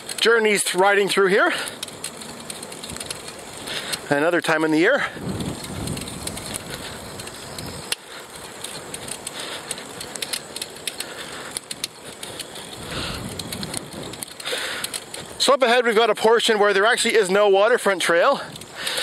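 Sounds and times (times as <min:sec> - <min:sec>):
low gusty rumble: 0:01.6 - 0:15.4
wind rushing over microphone: 0:01.9 - 0:10.3, 0:11.4 - 0:15.4.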